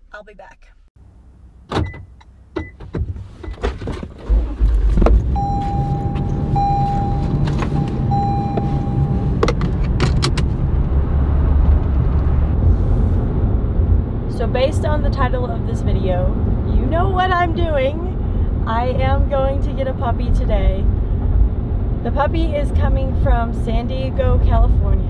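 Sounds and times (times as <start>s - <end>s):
car engine starting and running: 1.0s - 25.0s
electronic warning chime: 5.4s - 9.4s.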